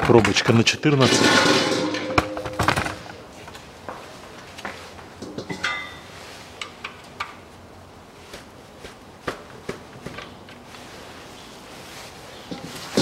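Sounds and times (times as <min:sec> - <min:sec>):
ringing metal clink: 0:05.5 - 0:06.0.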